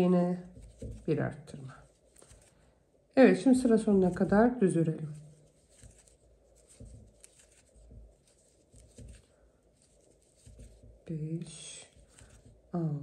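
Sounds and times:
yarn rustling and scratching: 0.0 - 2.7, 3.4 - 12.8
soft bumps: 0.4 - 2.5, 5.4 - 11.1.

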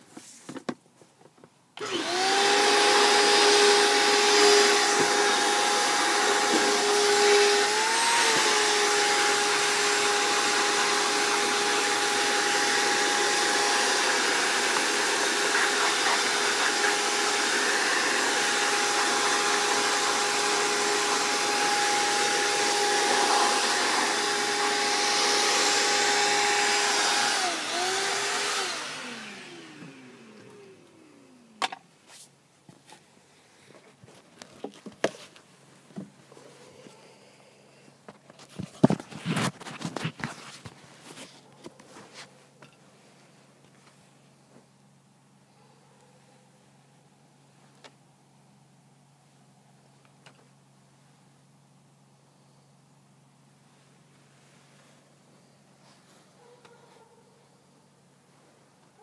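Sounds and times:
small vacuum whining: 1.8 - 31.8.

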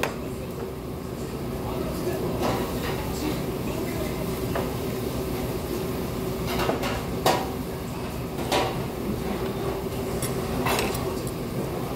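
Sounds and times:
metal utensils clinking on bowl: 10.2 - 11.4.

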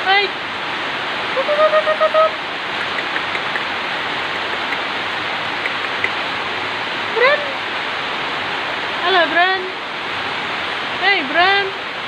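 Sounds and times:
rain falling: 0.0 - 12.0
faint drip ticks: 2.8 - 3.7, 4.3 - 4.9, 5.6 - 6.2.

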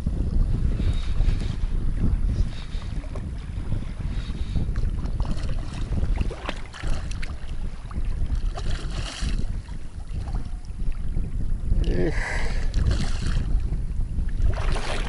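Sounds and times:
water lapping: 0.0 - 13.7, 14.3 - 15.0
wind buffeting microphone: 0.0 - 15.0
water splash: 8.4 - 9.4, 14.5 - 15.0.

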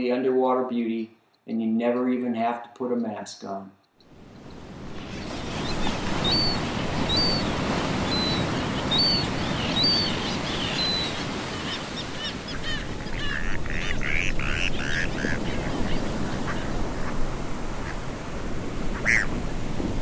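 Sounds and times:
bird chirping: 3.8 - 16.6
ocean surf rushing: 4.1 - 20.0
harsh bird calls: 4.4 - 17.1, 19.0 - 19.4.

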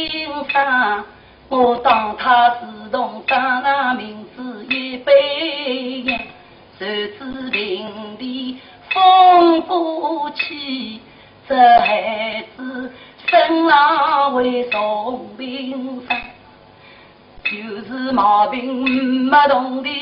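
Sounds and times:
sharp clicks: 16.1 - 16.4.

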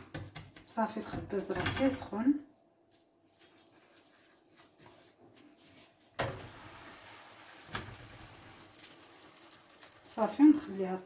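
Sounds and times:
dough hissing in frying pan: 5.1 - 11.0
dough thud in pan: 6.2 - 6.7.

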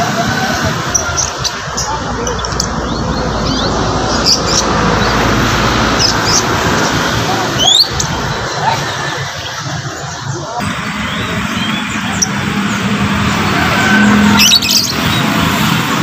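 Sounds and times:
songbirds chirping and whistling: 0.0 - 15.8
market crowd hubbub: 0.0 - 16.0
rising bird whistle: 7.6 - 8.0, 10.8 - 12.4, 13.5 - 15.3.

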